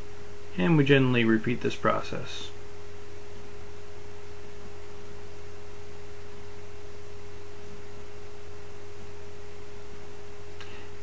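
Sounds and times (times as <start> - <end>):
low hum and hiss: 0.0 - 11.0.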